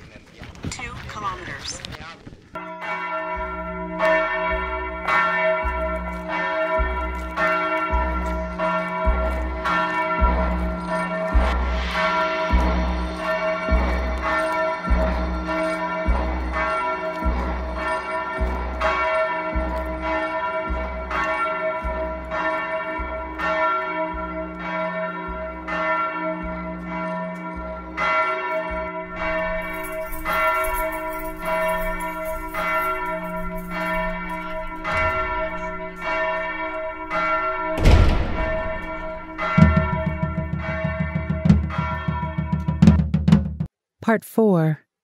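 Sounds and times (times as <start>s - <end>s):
bells ringing: 2.6s - 42.8s
low pulse: 29.0s - 41.2s
loud hit: 34.7s - 40.8s.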